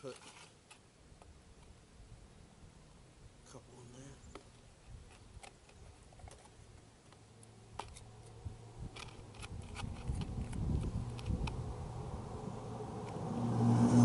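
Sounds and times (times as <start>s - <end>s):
low rumble: 10.0s - 14.0s.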